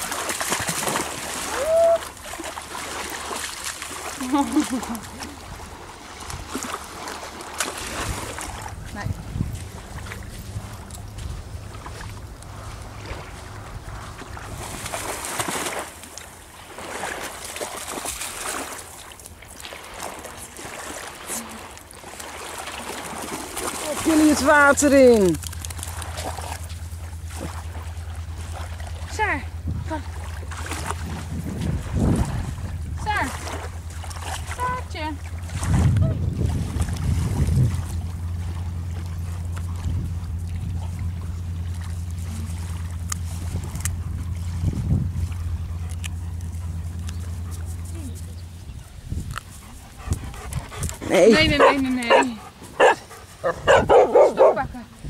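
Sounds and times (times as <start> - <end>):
dog splashing in water: 0.0 - 29.4, 30.0 - 48.4
steady low drone: 7.9 - 16.9, 25.1 - 54.2.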